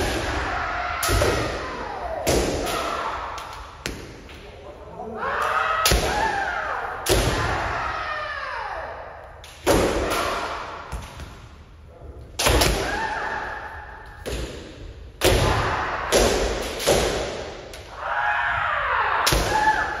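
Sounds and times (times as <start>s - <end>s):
long drawn-out shouts: 5.0s - 9.2s, 17.8s - 20.0s.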